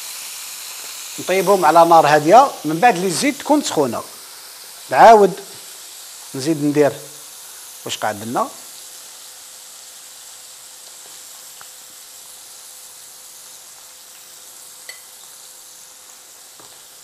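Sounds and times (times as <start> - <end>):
squid sizzling in hot oil: 0.0 - 17.0
fork clinking glass bowl: 14.8 - 15.1.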